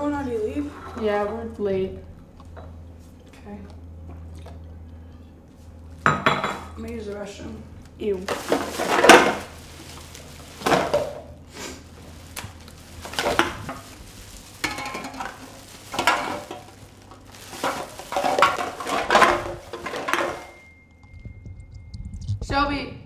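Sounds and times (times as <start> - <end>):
plastic bag rustling: 8.0 - 20.7.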